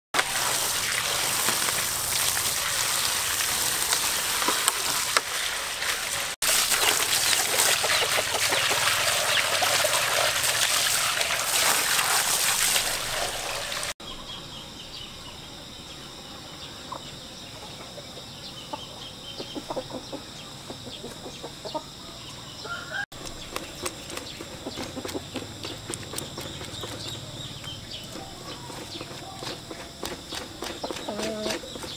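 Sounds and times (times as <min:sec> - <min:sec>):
hose spraying water: 0:00.2 - 0:14.0.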